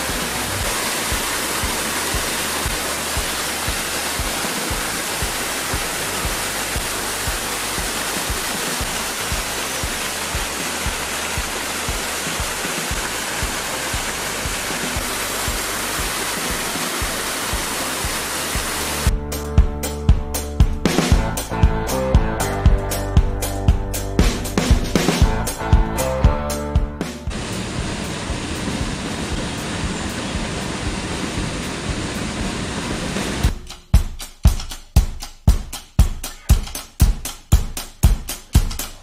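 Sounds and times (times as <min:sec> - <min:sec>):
water rushing over rocks: 0:00.0 - 0:19.1, 0:27.3 - 0:33.5.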